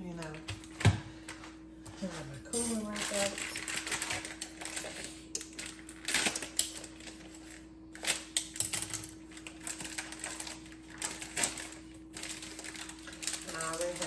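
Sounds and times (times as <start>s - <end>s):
steady hum: 0.0s - 14.0s
kitchen items clicking and tapping: 8.0s - 14.0s.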